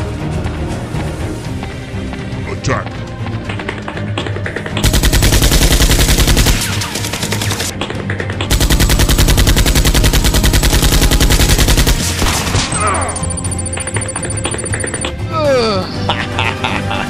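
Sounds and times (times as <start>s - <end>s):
background music: 0.0s - 17.0s
automatic gunfire sound effect: 4.8s - 7.7s, 8.5s - 12.7s.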